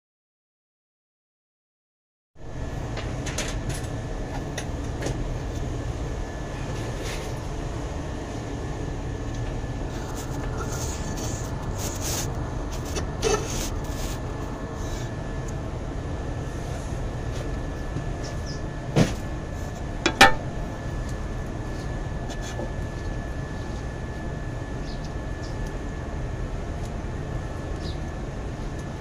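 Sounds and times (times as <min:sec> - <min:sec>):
machine low rumble with high whine: 0:02.4 - 0:29.0.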